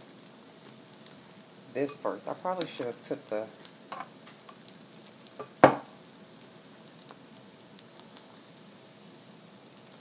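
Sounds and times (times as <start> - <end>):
tortillas crackling on griddle: 0.0 - 1.8, 2.4 - 10.0
loud thump: 5.6 - 5.9.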